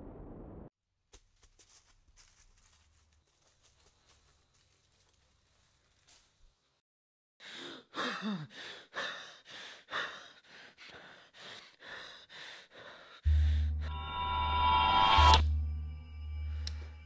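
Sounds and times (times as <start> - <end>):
man breathing hard: 7.4 - 13.8
low musical drone: 13.3 - 17.0.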